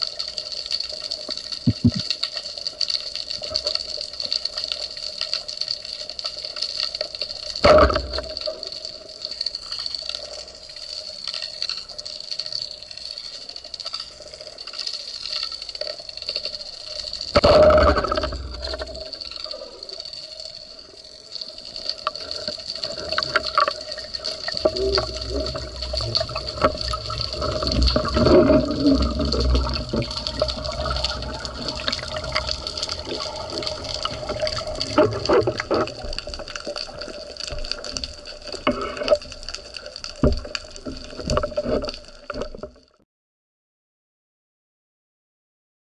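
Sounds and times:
water sloshing and bubbling: 0:00.0 - 0:43.0.

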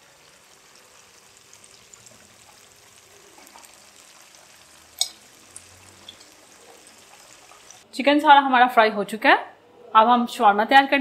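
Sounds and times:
hot oil sizzle and crackles: 0:00.0 - 0:07.9.

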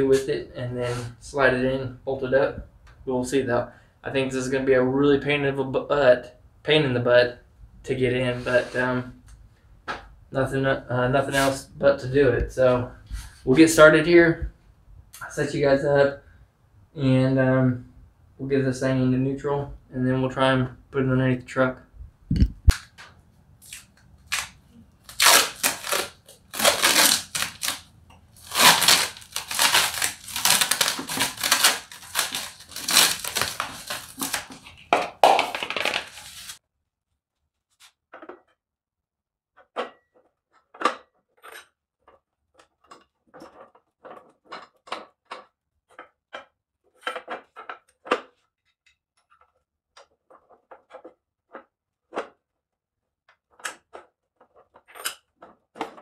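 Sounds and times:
crinkling and scraping handling noise: 0:22.7 - 0:36.6, 0:39.6 - 0:52.4, 0:53.3 - 0:56.0.

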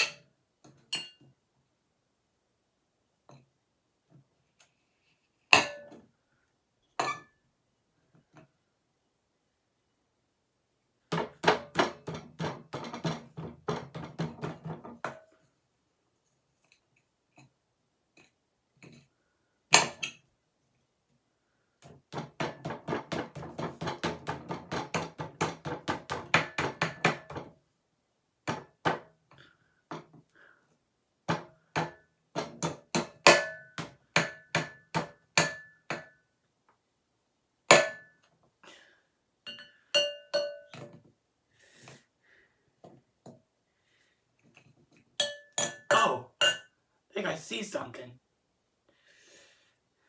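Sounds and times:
glass bowl ringing: 0:39.5 - 0:40.8, 0:45.2 - 0:46.7.

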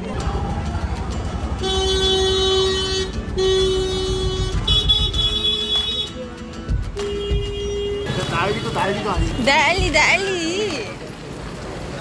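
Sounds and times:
car horn blasts: 0:01.6 - 0:06.2, 0:07.0 - 0:09.6.

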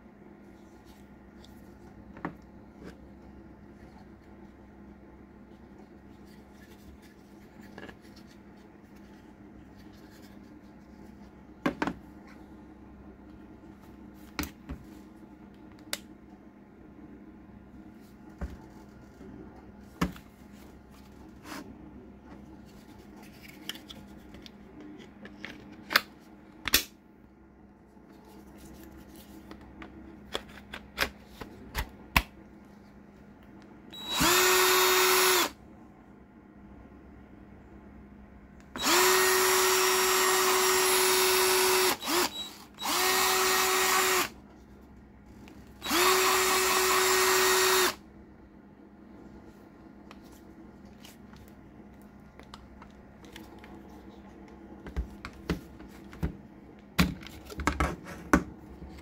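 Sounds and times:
cordless drill motor whine: 0:33.9 - 0:35.6, 0:38.8 - 0:44.4, 0:45.8 - 0:48.0.

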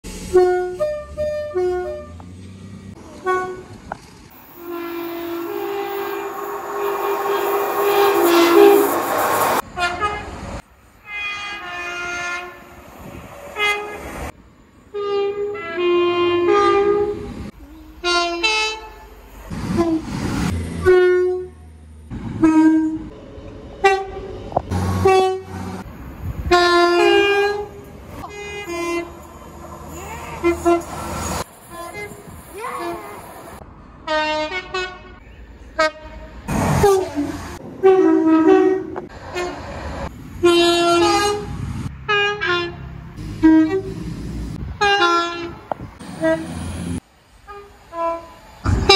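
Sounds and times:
train rushing by: 0:00.1 - 0:14.9, 0:18.4 - 0:34.1, 0:35.9 - 0:48.9
train horn blasts: 0:00.2 - 0:02.2, 0:03.2 - 0:03.8, 0:04.4 - 0:09.0, 0:09.6 - 0:10.4, 0:11.0 - 0:12.7, 0:13.6 - 0:14.0, 0:14.9 - 0:19.1, 0:20.7 - 0:21.7, 0:22.4 - 0:23.1, 0:23.8 - 0:25.8, 0:26.4 - 0:29.3, 0:30.4 - 0:33.2, 0:34.1 - 0:35.2, 0:35.8 - 0:39.7, 0:40.4 - 0:41.5, 0:42.1 - 0:44.0, 0:44.8 - 0:46.6, 0:47.4 - 0:48.9.

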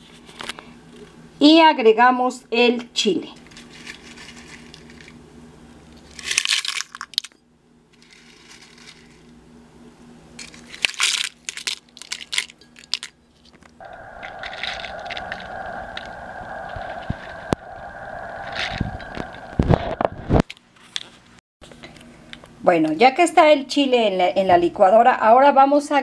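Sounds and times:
dried chiles rattling in plastic jar: 0:03.4 - 0:05.1, 0:06.1 - 0:07.4, 0:08.0 - 0:09.3, 0:10.4 - 0:13.7
steady hum: 0:13.8 - 0:20.5.

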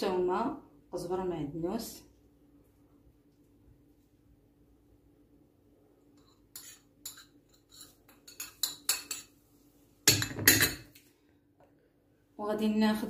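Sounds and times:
spoon scraping a plate: 0:06.2 - 0:09.3.

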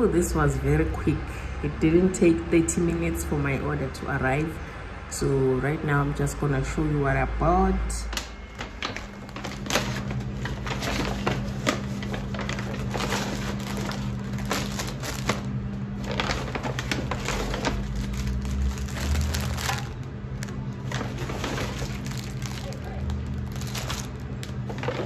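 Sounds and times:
steady low hum: 0:00.0 - 0:25.0
food packaging crinkling: 0:08.1 - 0:25.0.

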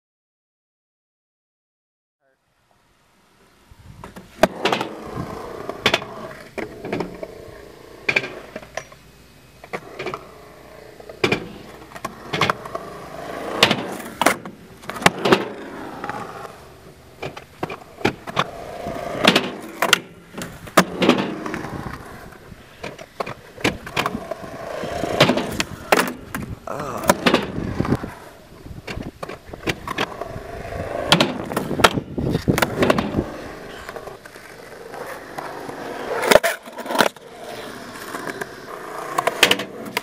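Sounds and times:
skateboard wheels rolling on concrete: 0:03.3 - 0:40.0
skateboard clacks: 0:04.0 - 0:07.3, 0:11.0 - 0:22.1, 0:22.8 - 0:28.2, 0:28.8 - 0:40.0
skateboard scraping a ledge: 0:04.1 - 0:08.7, 0:09.6 - 0:40.0.

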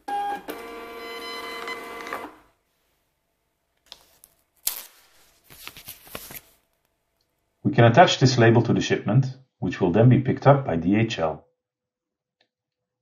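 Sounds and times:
paper crackling: 0:03.8 - 0:06.7
paper label tearing: 0:03.9 - 0:06.4.

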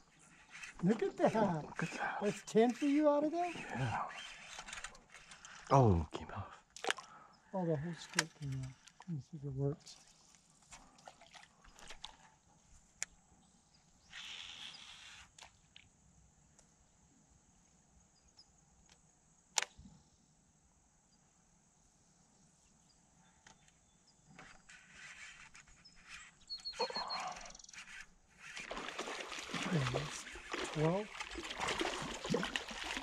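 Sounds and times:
fishing reel clicks: 0:00.4 - 0:05.7.

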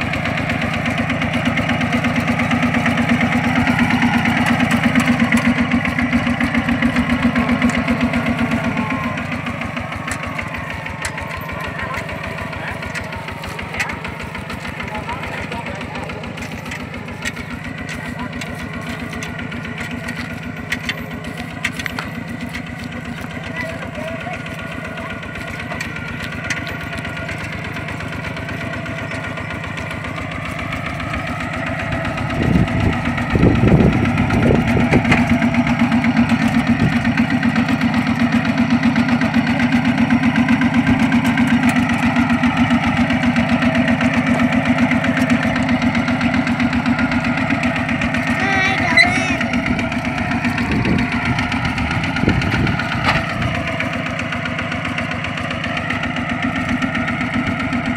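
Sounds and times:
diesel tractor engine thumping: 0:00.0 - 0:57.9.

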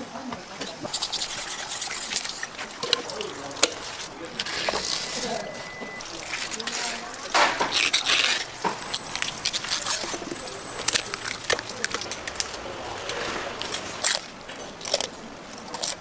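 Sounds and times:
knife cutting and scraping eel: 0:00.9 - 0:16.0.

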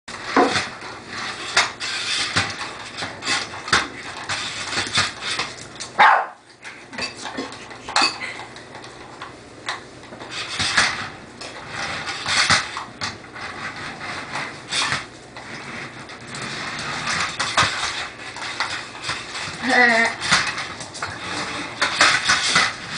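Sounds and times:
puppy yapping: 0:06.0 - 0:06.4
toy car wheels clattering on floor: 0:09.7 - 0:22.9.

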